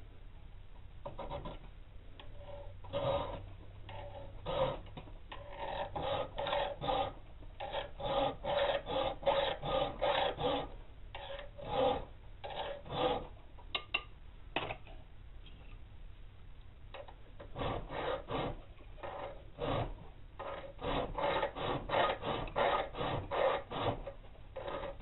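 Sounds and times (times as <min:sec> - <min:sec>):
file rasping on steel: 0:01.0 - 0:01.6, 0:02.2 - 0:13.4, 0:17.0 - 0:25.0.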